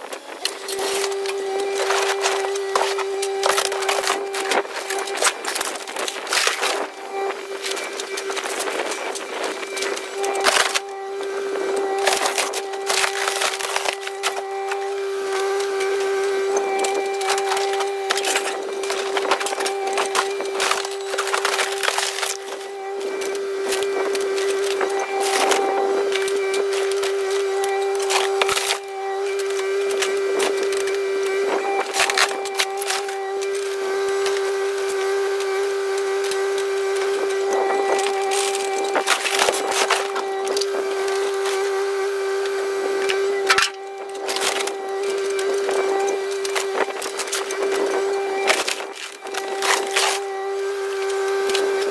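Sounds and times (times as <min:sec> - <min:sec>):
fiberglass cracking and splintering: 0:00.0 - 0:11.2, 0:11.8 - 0:51.9
excavator engine humming: 0:00.0 - 0:51.9.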